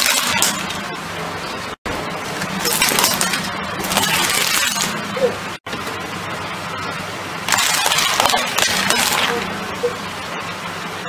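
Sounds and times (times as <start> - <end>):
plastic toy cracking under tyre: 7.5 - 9.4.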